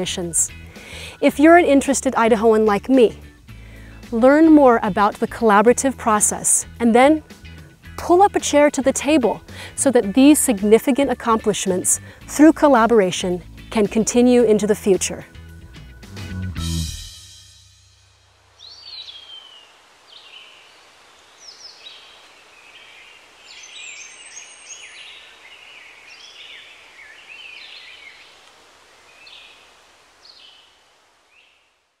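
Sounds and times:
steady outdoor hiss: 0.0s - 32.0s
birds singing and calling: 21.4s - 28.4s.

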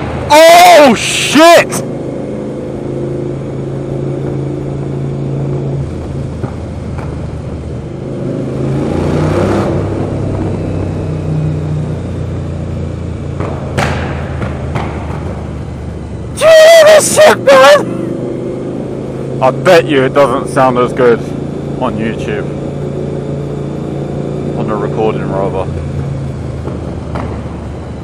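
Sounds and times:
motorcycle engine in tunnel: 0.0s - 28.0s
exhaust cracks: 4.2s - 7.7s.

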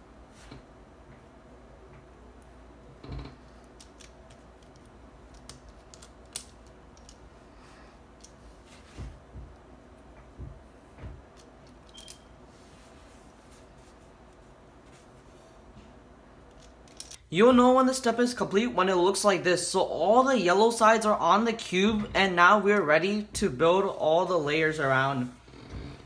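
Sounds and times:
plastic cube pieces clicking: 3.7s - 7.2s.

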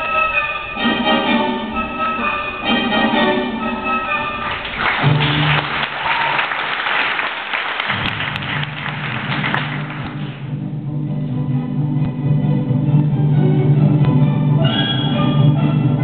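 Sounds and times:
orchestral ballet music: 0.0s - 6.0s, 8.0s - 16.0s
audience applauding: 4.4s - 10.5s.

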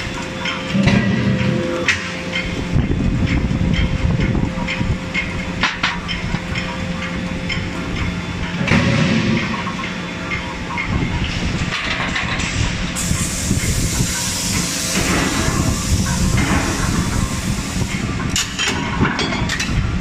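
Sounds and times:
machinery hum: 0.0s - 20.0s
steady hiss: 13.0s - 18.2s.

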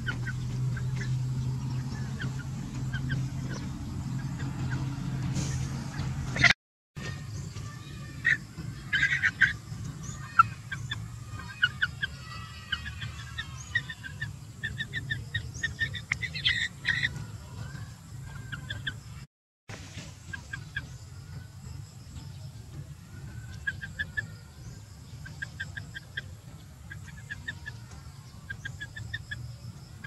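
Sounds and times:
chicken clucking and peeping: 0.0s - 6.5s, 7.5s - 19.2s, 19.9s - 30.0s
steady low rumble: 0.0s - 6.5s.

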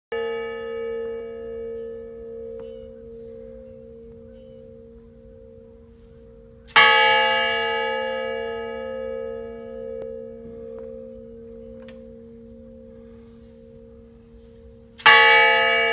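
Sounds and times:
large bell tolling: 0.1s - 15.9s.

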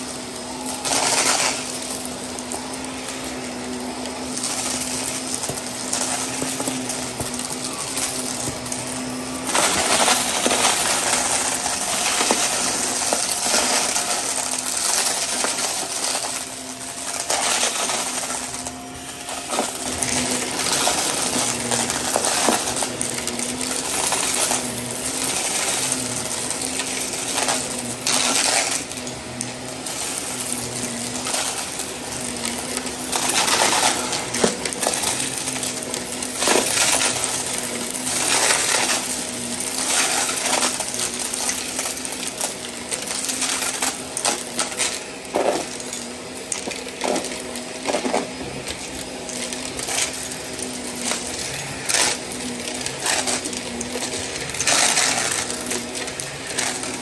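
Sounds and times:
debris rattling through vacuum: 0.0s - 57.0s
vacuum cleaner motor hum: 0.0s - 57.0s.

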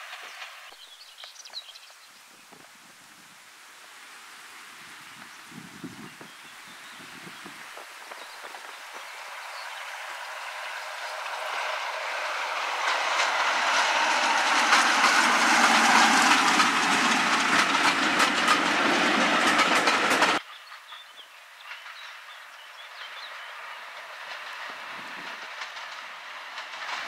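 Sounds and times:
wheels clattering over rail joints: 0.0s - 0.9s, 7.5s - 27.0s
diesel locomotive passing: 0.0s - 1.8s, 3.9s - 27.0s.

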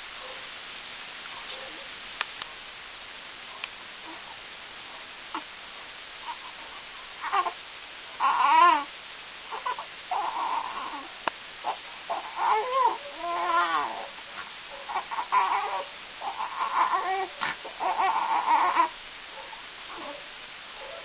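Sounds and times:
newborn baby crying: 7.2s - 7.6s, 8.2s - 8.9s, 9.5s - 14.2s, 14.8s - 19.0s.

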